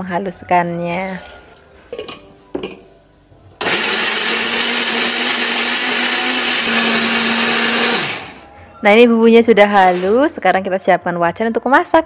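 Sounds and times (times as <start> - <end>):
blender grinding: 3.6 - 8.4.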